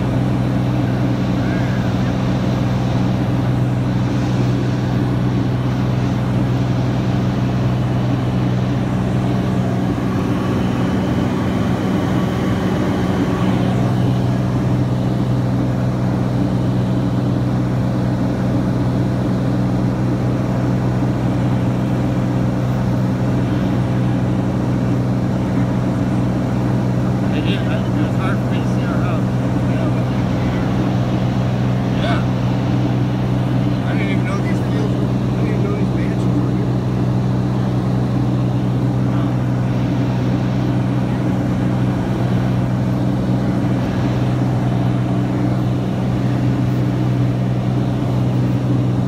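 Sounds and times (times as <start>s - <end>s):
propeller plane engine drone: 0.0s - 49.0s.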